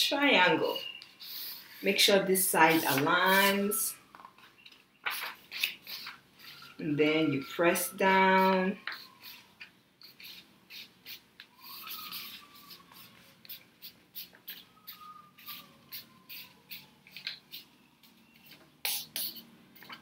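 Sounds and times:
paper rustling and crinkling: 4.3s - 6.6s
faint drawn-out squeaks: 5.9s - 7.8s.

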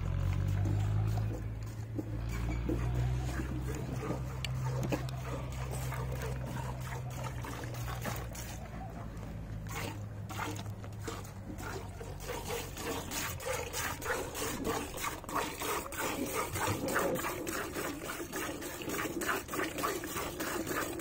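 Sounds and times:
milk squirting into a vessel: 9.7s - 21.0s.

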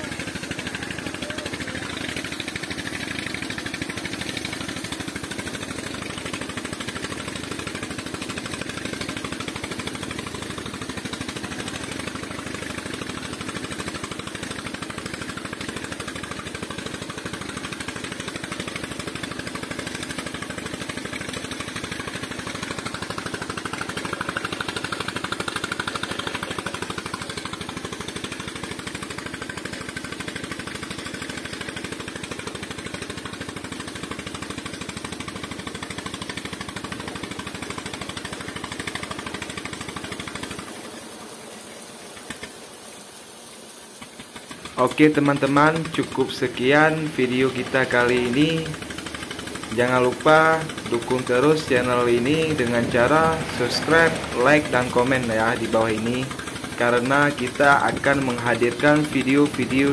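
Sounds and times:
engine chugging: 0.0s - 59.9s
slurry gushing from pipe: 0.0s - 59.9s.

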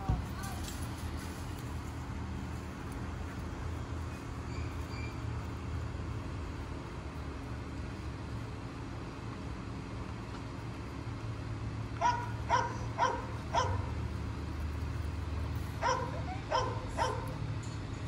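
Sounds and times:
dog barking: 12.0s - 13.9s, 15.8s - 17.4s.

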